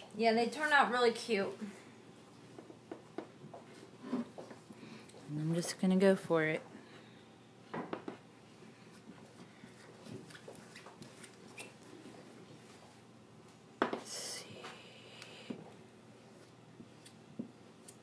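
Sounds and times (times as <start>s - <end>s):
faint scraping and rubbing: 3.8s - 4.5s.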